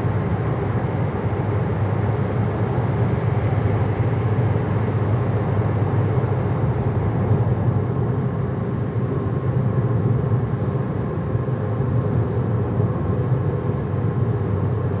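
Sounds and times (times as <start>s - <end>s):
car road and engine noise: 0.0s - 15.0s.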